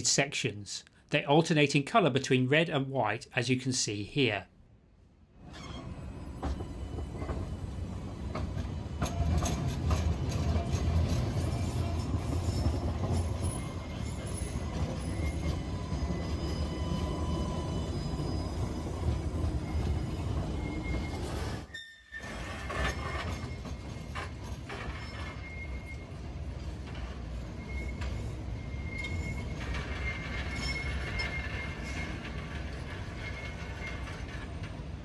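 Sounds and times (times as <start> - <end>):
tram rumbling on track: 5.4 - 35.0
high-pitched wheel squeals: 5.5 - 7.6, 10.2 - 26.2, 26.9 - 34.4.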